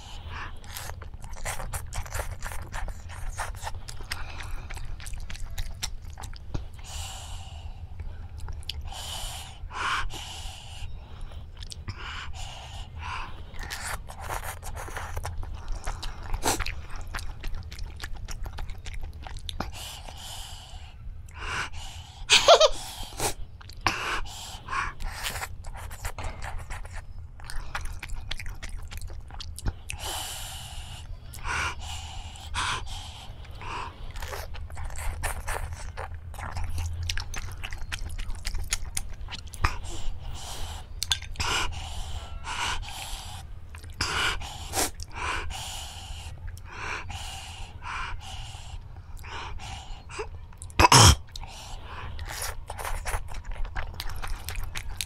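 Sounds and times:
person chewing and slurping: 0:00.0 - 0:09.3, 0:11.5 - 0:20.5, 0:23.2 - 0:55.0
sharp breaths drawn in: 0:08.9 - 0:14.0, 0:30.0 - 0:34.5, 0:39.8 - 0:50.3.

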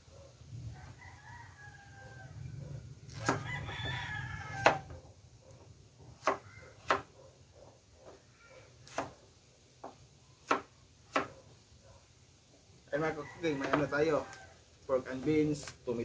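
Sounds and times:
rooster crowing: 0:00.7 - 0:05.1, 0:12.9 - 0:14.6.

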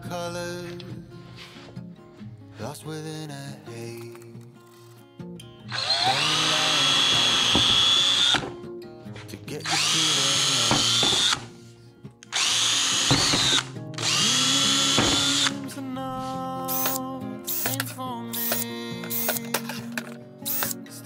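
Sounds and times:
power drill boring into wood: 0:05.7 - 0:08.5, 0:09.7 - 0:11.5, 0:12.3 - 0:15.6, 0:16.7 - 0:17.8, 0:18.4 - 0:19.4.

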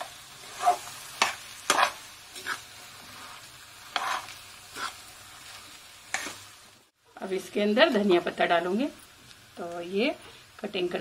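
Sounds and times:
metal spatula scraping a pan: 0:00.0 - 0:06.5.

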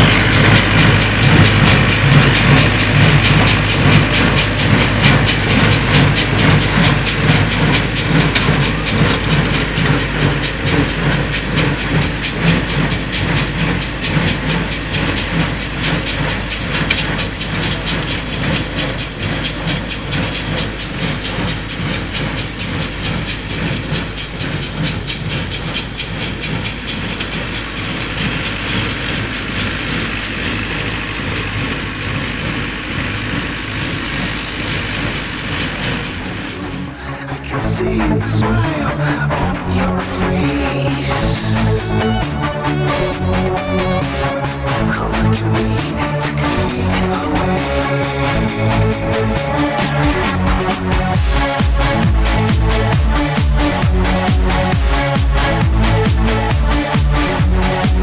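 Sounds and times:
baler plunger clattering: 0:00.0 - 0:37.0
tractor diesel engine running: 0:00.0 - 0:58.0.

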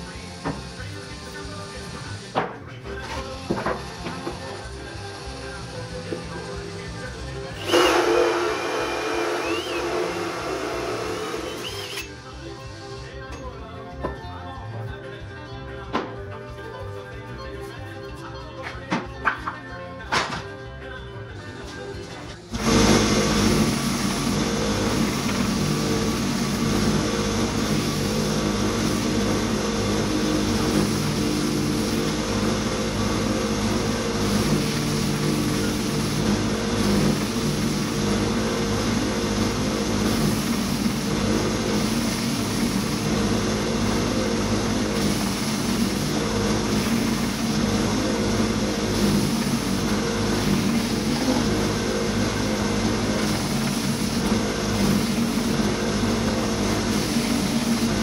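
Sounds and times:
belt sander motor hum: 0:07.5 - 0:12.1, 0:22.5 - 0:58.0.

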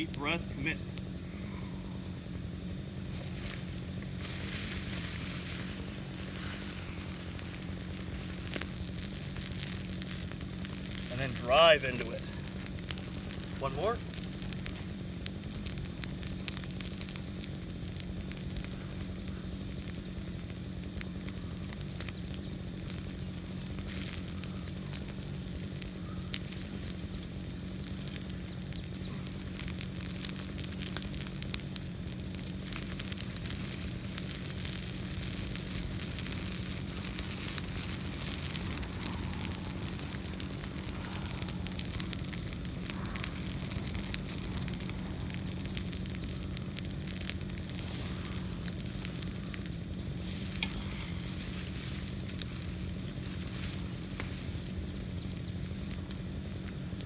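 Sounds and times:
branches burning crackling: 0:00.0 - 0:57.0
low hum: 0:00.0 - 0:57.0.

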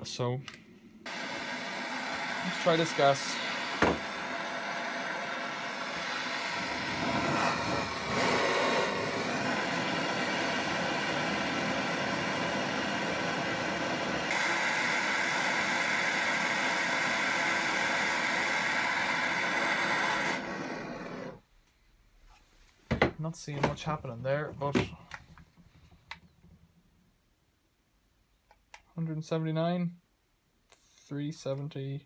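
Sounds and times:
blowtorch flame hissing: 0:01.1 - 0:21.4.

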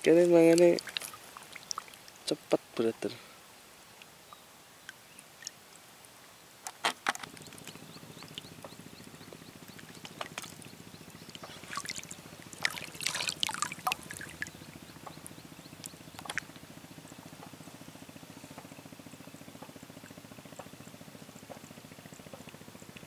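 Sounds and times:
water dripping and splashing: 0:00.0 - 0:02.8, 0:04.8 - 0:05.8, 0:07.2 - 0:16.5
steady low hum: 0:07.2 - 0:23.0.

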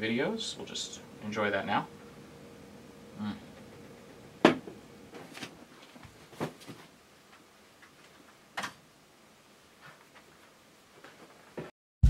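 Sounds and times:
glass knocking on wooden desk: 0:04.4 - 0:04.7.

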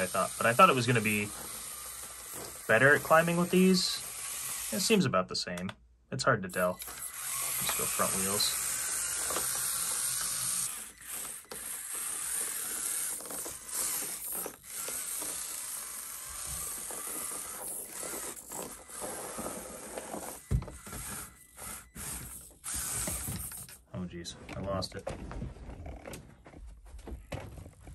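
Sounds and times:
toy truck motor whirring: 0:00.0 - 0:05.1, 0:06.5 - 0:23.9.

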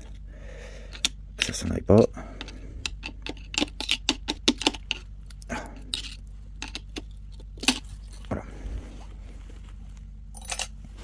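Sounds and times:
metal parts clicking and clinking: 0:02.5 - 0:08.3, 0:10.3 - 0:10.8.

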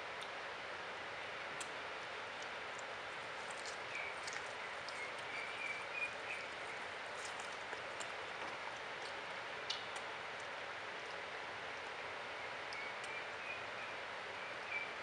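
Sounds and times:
animal chewing watermelon: 0:02.4 - 0:10.6.

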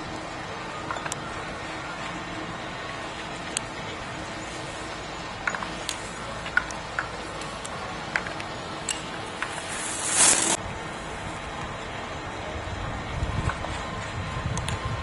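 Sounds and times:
steady outdoor hiss: 0:00.0 - 0:15.0
skis scraping across snow: 0:09.4 - 0:10.6.

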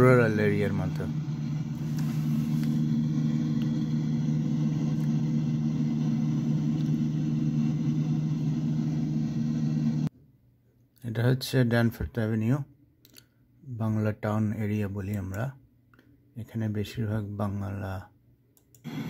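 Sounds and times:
plane engine and propeller drone: 0:00.0 - 0:10.1.

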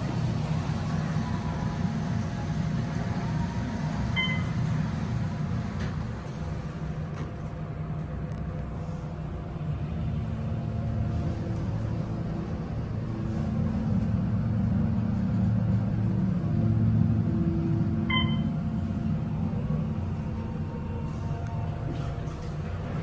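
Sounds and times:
elevator rumble and hum: 0:00.0 - 0:23.0
elevator chime: 0:04.1 - 0:04.7, 0:18.0 - 0:18.6.

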